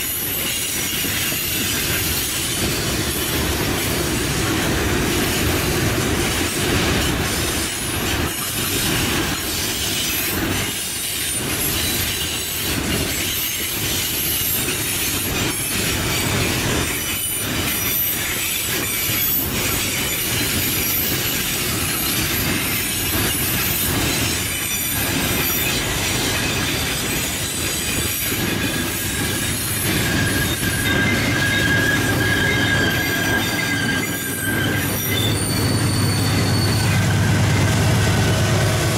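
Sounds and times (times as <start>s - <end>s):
high wheel squeal: 0.0s - 38.8s
train wheels rumbling and clattering: 0.0s - 38.9s.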